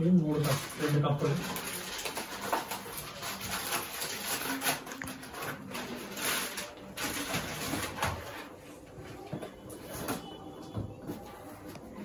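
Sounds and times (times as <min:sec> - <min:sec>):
packaging rustling: 0:00.3 - 0:08.6.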